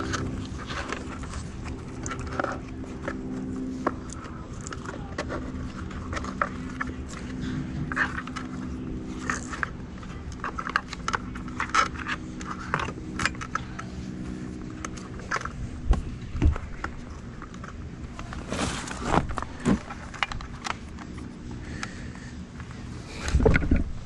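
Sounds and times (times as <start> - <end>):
plastic connectors clicking and rattling: 0.0 - 3.2, 3.8 - 14.0, 14.6 - 18.4, 19.2 - 21.9
scraping rustle: 0.0 - 24.0.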